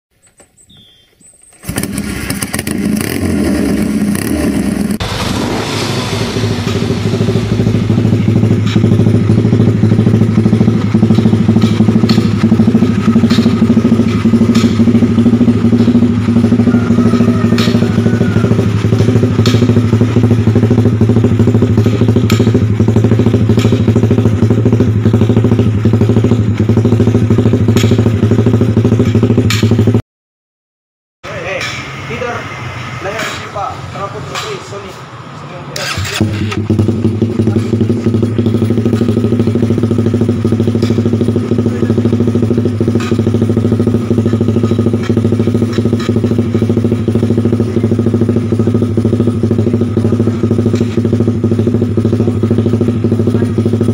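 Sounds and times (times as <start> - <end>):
exhaust cracks: 1.4 - 30.0, 31.3 - 53.9
motorcycle engine loping idle: 6.0 - 30.0, 35.9 - 53.9.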